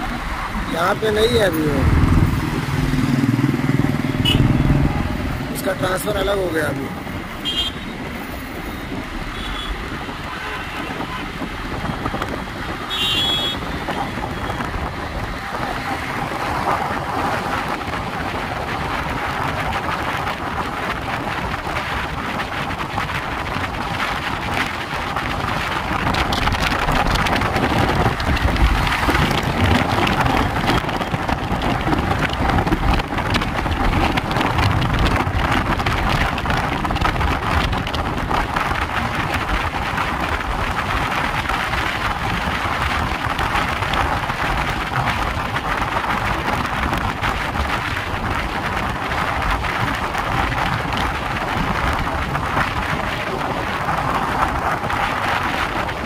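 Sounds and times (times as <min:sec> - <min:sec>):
road and wind noise inside car: 0:00.0 - 0:56.0.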